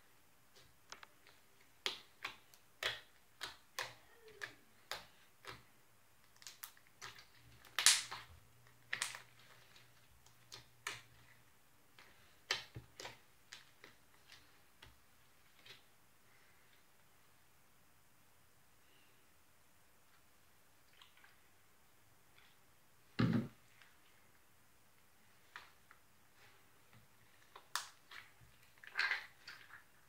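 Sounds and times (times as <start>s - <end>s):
slime kneaded by hand: 0.4s - 16.0s, 24.9s - 30.0s.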